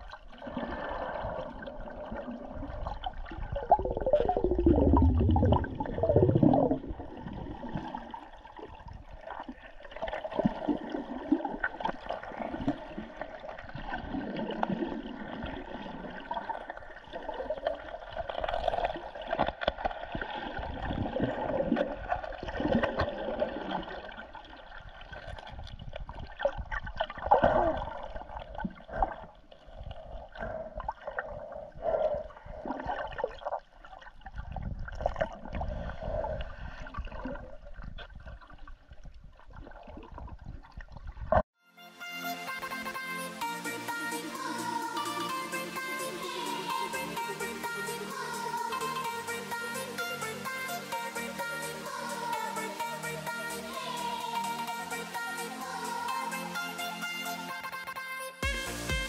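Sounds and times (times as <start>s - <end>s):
underwater gurgling and sloshing: 0.0s - 41.5s.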